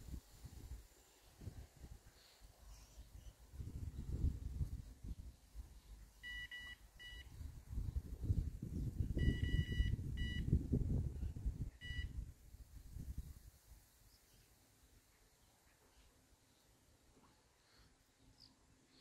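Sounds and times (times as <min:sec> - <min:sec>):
low rumble on microphone: 0:03.5 - 0:06.0, 0:07.3 - 0:13.4
electronic bite alarm beeping: 0:06.2 - 0:07.3, 0:09.2 - 0:10.5, 0:11.8 - 0:12.1.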